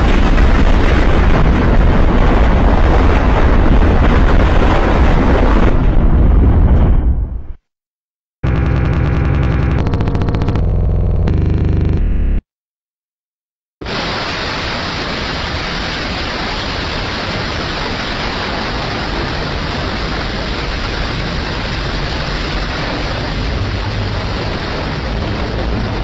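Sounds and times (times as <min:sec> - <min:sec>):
deep rumble: 0:00.0 - 0:07.6, 0:08.4 - 0:12.4, 0:18.5 - 0:26.0
loud rushing static noise: 0:13.8 - 0:26.0.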